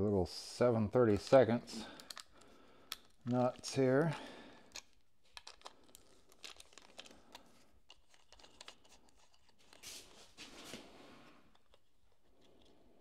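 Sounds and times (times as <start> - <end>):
hands clicking small parts: 1.2 - 9.8.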